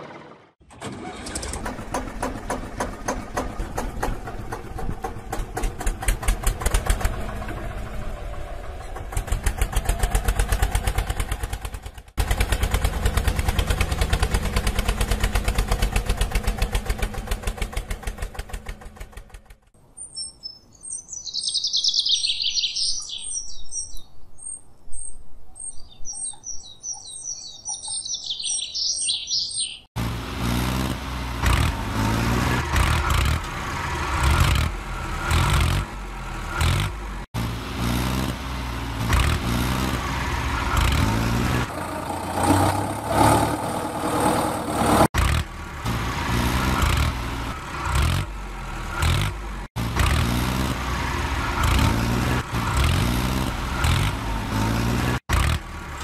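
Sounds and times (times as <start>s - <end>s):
engine puttering: 0.0s - 19.8s, 30.0s - 56.0s
rough engine rumble: 0.0s - 19.8s, 30.0s - 56.0s
birds chirping: 19.8s - 29.9s.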